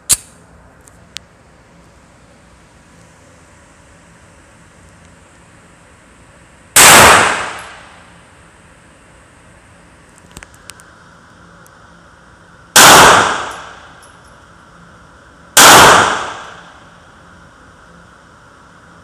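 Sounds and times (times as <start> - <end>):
pistol shots echoing indoors: 6.8 - 7.9, 12.8 - 13.9, 15.6 - 16.7.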